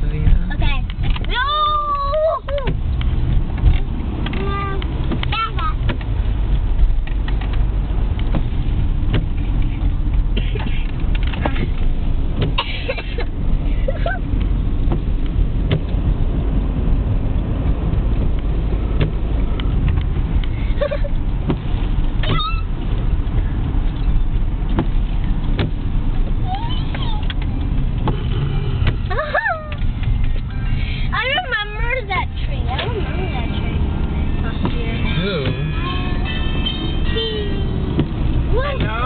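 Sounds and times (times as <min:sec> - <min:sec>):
car road and engine rumble: 0:00.0 - 0:39.0.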